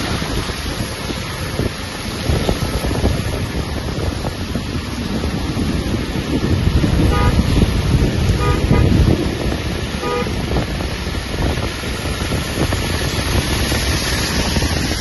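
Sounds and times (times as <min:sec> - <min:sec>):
car driving on wet road: 0:00.0 - 0:15.0
vehicle horn toots: 0:07.0 - 0:07.6, 0:08.3 - 0:09.0, 0:10.0 - 0:10.5.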